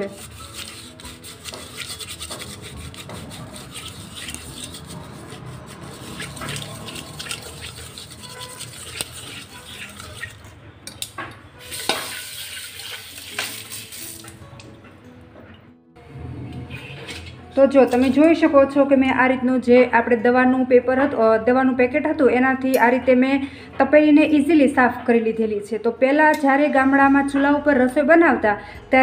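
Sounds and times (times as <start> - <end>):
scrubbing steel pot: 0.0 - 10.6, 11.6 - 14.3.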